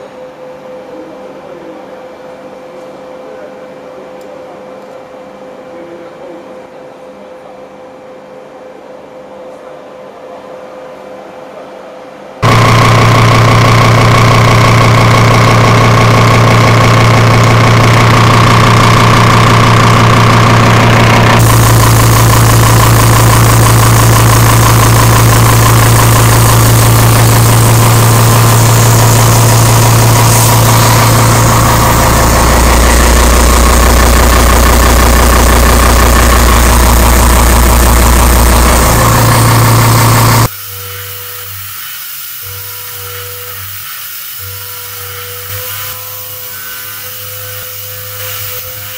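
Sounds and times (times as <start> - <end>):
machining centre milling steel: 12.4 - 48.9
milling cutter droning: 12.4 - 48.9.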